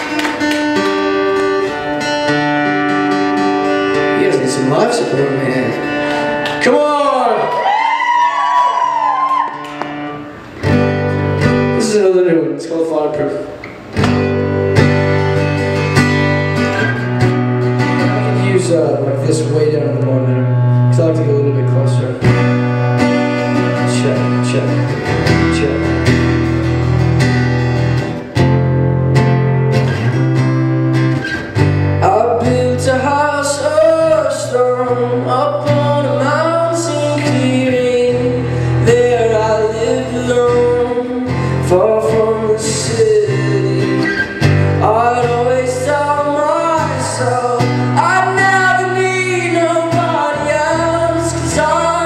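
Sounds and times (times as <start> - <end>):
acoustic guitar strumming: 0.0 - 7.8, 8.6 - 52.0
young man singing: 32.0 - 52.0.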